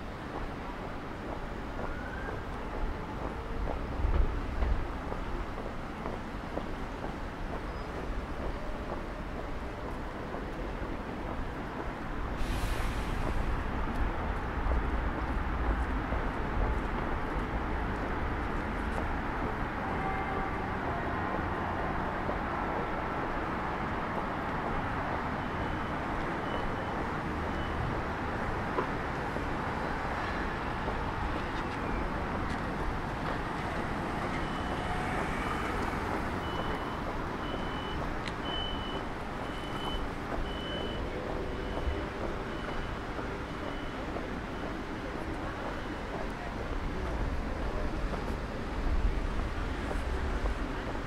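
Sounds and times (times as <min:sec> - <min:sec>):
distant traffic rumble: 0:00.0 - 0:51.0
street noise: 0:00.0 - 0:51.0
vehicle reversing alarm beeping: 0:25.3 - 0:28.2, 0:34.0 - 0:46.1.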